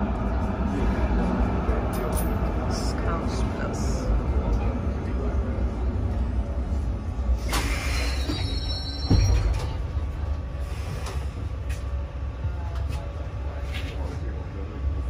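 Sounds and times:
tram rumbling on rails: 0.0 - 15.0
high wheel squeal: 7.5 - 9.7.

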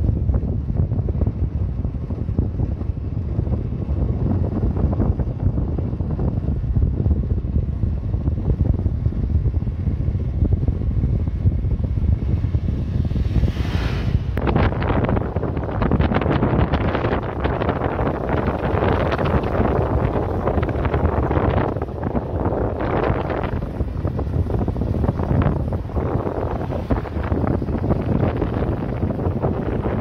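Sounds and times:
motorcycle engine running: 0.0 - 13.6, 14.2 - 30.0
wind buffeting microphone: 0.0 - 30.0.

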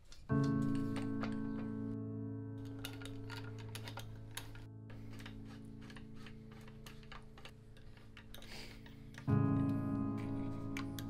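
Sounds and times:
quiet background music: 0.0 - 11.0.

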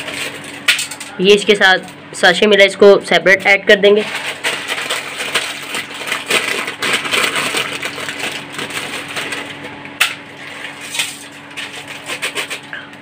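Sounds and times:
plastic wrappers crinkling: 4.0 - 9.7.

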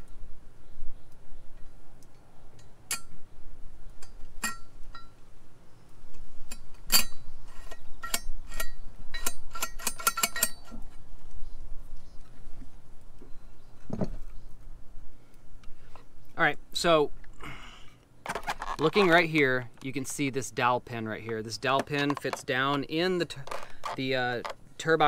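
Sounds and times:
metal parts clinking: 6.5 - 10.7, 21.8 - 24.6.

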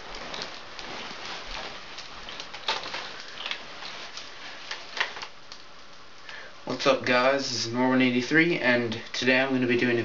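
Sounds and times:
clothing rustling: 0.0 - 5.4.

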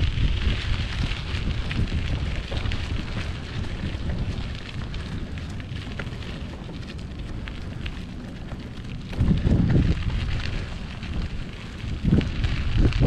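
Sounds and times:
crackling ticks: 0.0 - 13.0
wind buffeting microphone: 0.0 - 13.0.

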